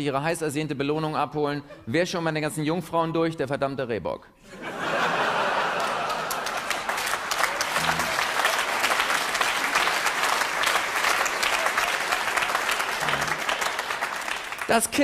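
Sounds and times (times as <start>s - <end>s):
audience applause: 5.0s - 15.0s.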